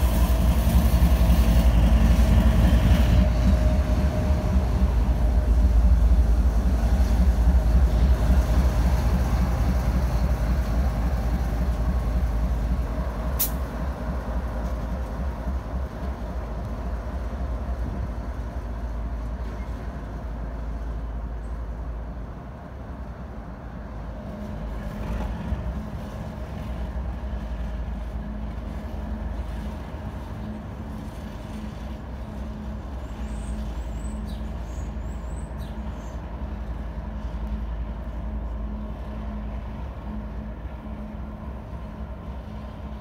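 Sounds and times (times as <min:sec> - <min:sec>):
diesel locomotive engine drone: 0:00.0 - 0:43.0
train wheels rolling on rails: 0:00.0 - 0:43.0.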